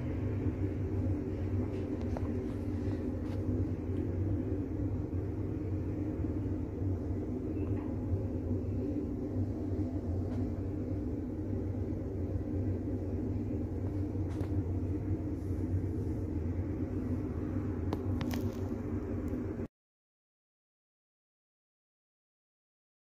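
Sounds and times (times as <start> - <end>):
droning hum: 0.0 - 19.7
low rumble: 0.0 - 19.7.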